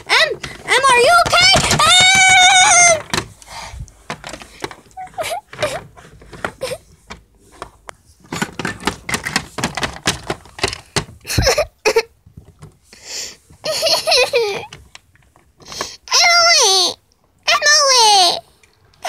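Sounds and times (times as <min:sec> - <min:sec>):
plastic toys clicking and knocking: 0:00.0 - 0:12.8, 0:13.4 - 0:16.4
high-pitched laughter: 0:13.6 - 0:14.7.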